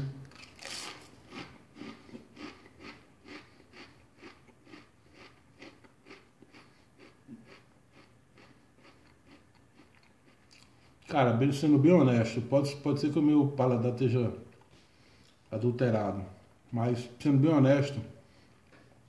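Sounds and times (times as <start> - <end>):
crisps crunching: 0.3 - 10.8.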